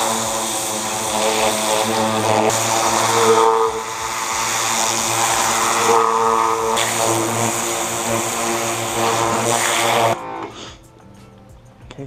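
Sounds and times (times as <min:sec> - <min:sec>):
water jet hissing on metal: 0:00.0 - 0:10.2
pressure washer pump droning: 0:00.0 - 0:10.7.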